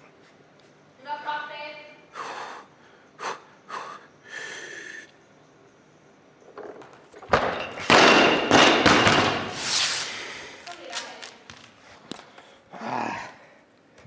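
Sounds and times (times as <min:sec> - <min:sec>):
person breathing sharply: 0:02.1 - 0:05.1
barbell crashing and bouncing: 0:06.6 - 0:09.6.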